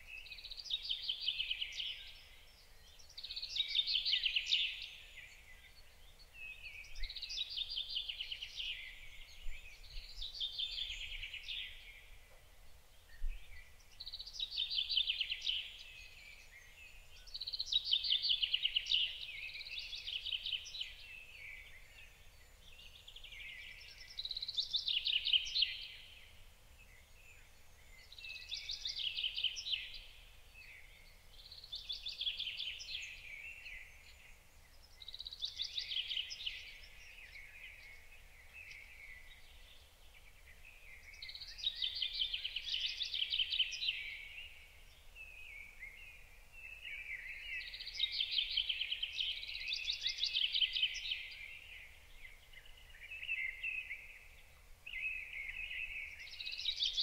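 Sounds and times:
chaffinch singing: 34.8s - 57.0s.

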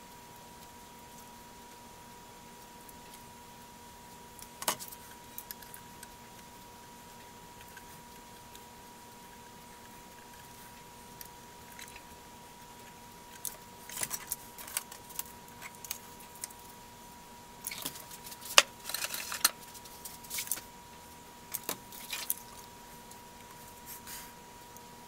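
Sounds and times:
faint steady hum: 0.0s - 25.0s
metal tools clicking and scraping: 17.7s - 19.6s.

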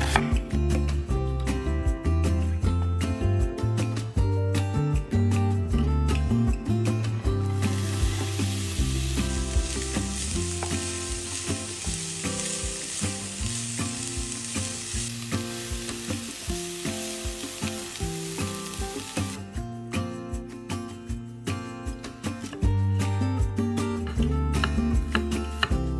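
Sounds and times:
background music: 0.0s - 25.9s
onions sizzling in oil: 7.5s - 19.4s.

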